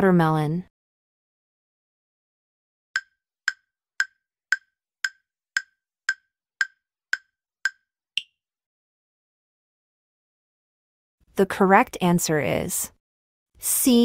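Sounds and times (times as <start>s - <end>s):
countdown timer ticks: 3.0s - 8.3s.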